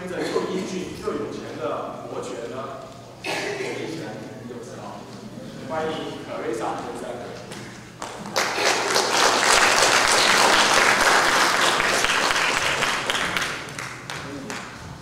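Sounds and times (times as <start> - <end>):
audience applauding: 8.0 - 14.8.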